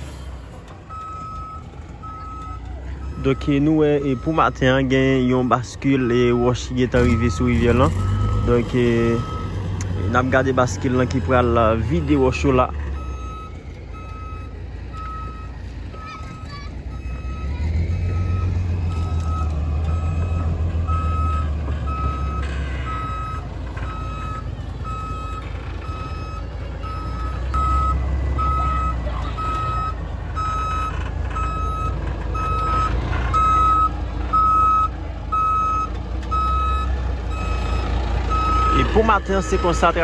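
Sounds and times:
truck engine rumble: 0.0 - 40.0
reversing alarm beeping: 0.9 - 40.0.

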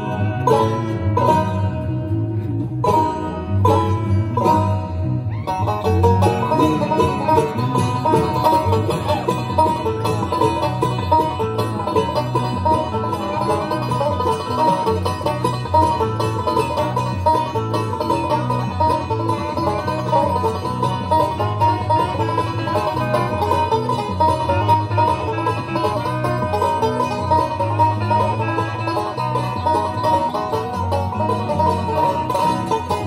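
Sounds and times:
banjo picking: 0.0 - 33.0
bluegrass band playing: 0.0 - 33.0.

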